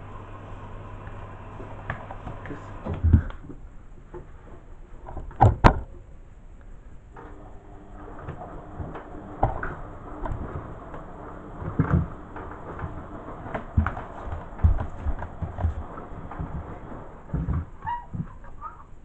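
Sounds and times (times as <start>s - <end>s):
plastic knocking and scraping: 11.6s - 18.4s.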